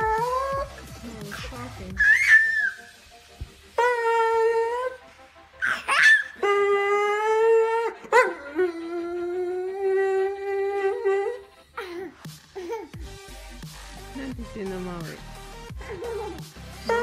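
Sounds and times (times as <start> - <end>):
dog howling: 5.7 - 11.5.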